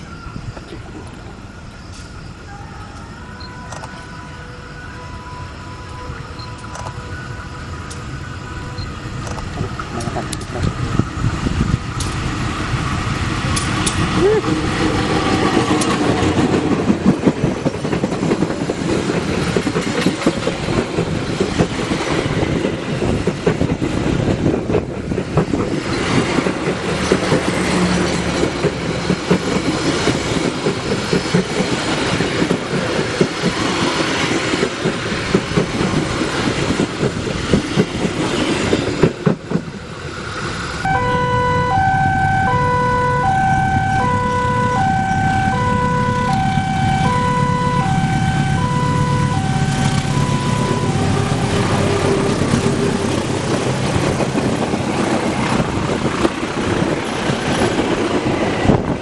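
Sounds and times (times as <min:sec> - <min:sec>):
two-tone locomotive horn: 0:01.9 - 0:10.2, 0:40.8 - 0:53.4
train wheels clattering over rail joints: 0:09.2 - 0:40.6, 0:52.0 - 0:59.0.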